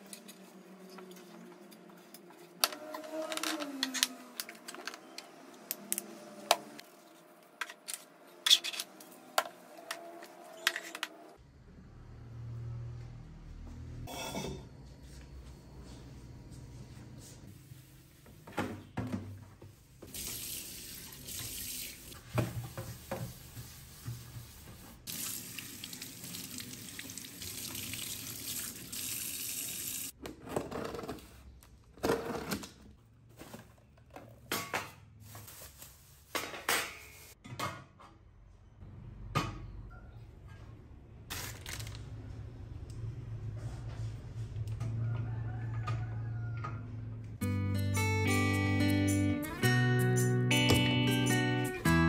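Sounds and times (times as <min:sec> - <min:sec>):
tap water running into sink: 0:20.1 - 0:30.1.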